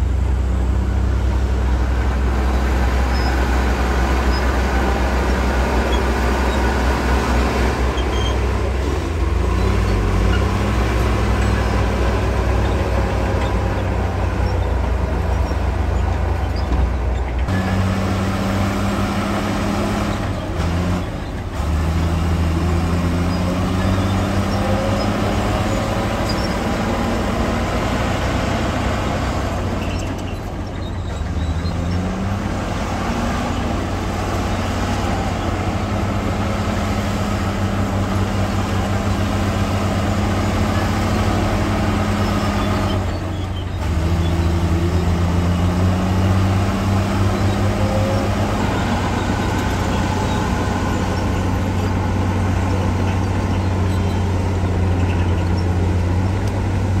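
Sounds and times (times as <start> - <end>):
bulldozer diesel engine working: 0.0 - 57.0
dump truck diesel engine: 0.0 - 57.0.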